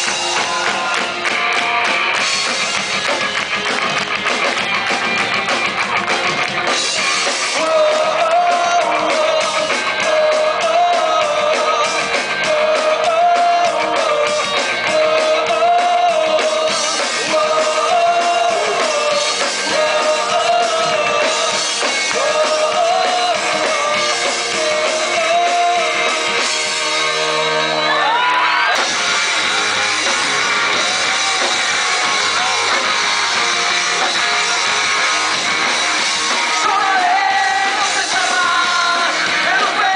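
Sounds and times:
drums: 0.0 - 39.9
electric guitars: 0.0 - 39.9
shouted singing: 7.4 - 28.9, 36.0 - 39.9.

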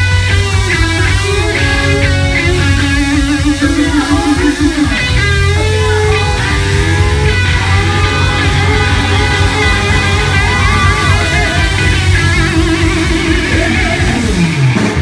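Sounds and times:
bass and drums: 0.0 - 15.0
distorted electric guitars: 0.0 - 15.0.

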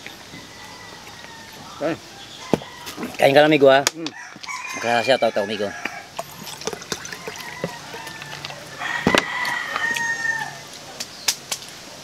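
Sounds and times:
rooster crowing: 0.2 - 3.2, 4.1 - 10.7.

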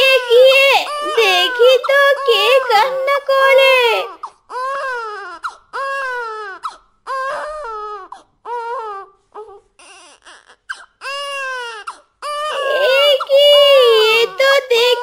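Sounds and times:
cartoon animal crying: 12.3 - 15.0.

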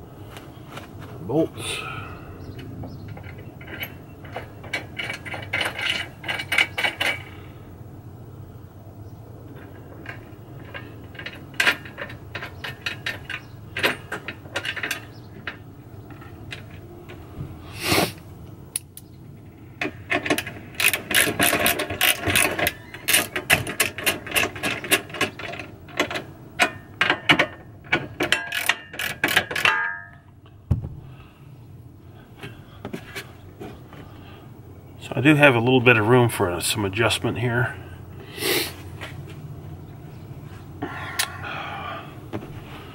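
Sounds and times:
metal clinks of bolts: 19.8 - 30.4.

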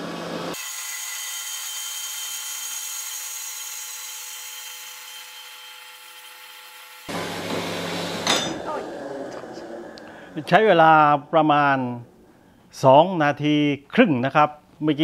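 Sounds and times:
band saw cutting steel tube: 0.5 - 12.2.

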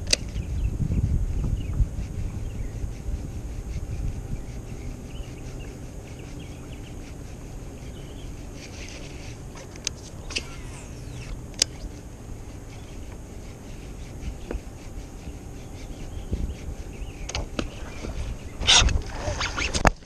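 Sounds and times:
sharp clicks: 0.0 - 0.4, 9.6 - 12.0, 17.2 - 17.7
fishing reel ticking: 0.0 - 0.5, 2.8 - 19.9
wind rumble on microphone: 0.0 - 20.0
faint high chirps: 10.1 - 12.0.

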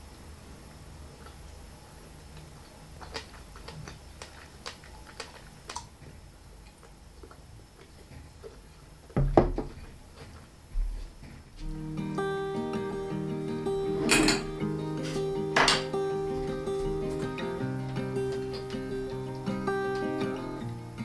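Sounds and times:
quiet chewing: 1.1 - 9.2.

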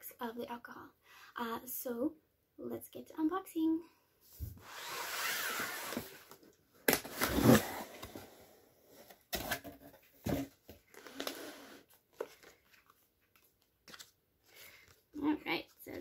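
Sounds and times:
cardboard box scraping slide: 4.6 - 6.3, 7.1 - 8.5
paper rustling: 12.0 - 15.0.

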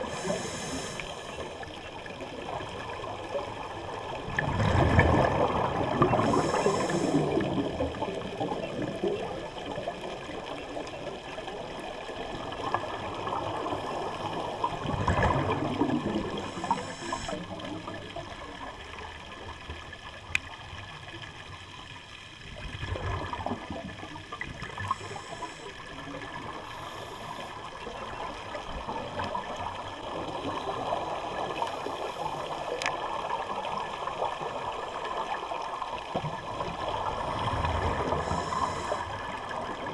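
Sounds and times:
regulator inhalation hiss: 0.0 - 1.4, 6.2 - 7.5, 16.4 - 17.5, 24.8 - 25.8, 38.2 - 39.2
gurgling exhaled bubbles: 0.0 - 19.5, 22.6 - 39.9.

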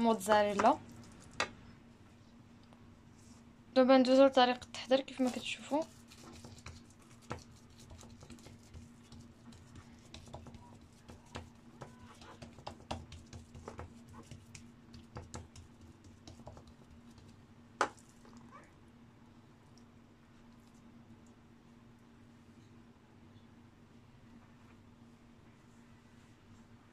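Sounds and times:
hands patting dough on wood: 5.2 - 18.1.

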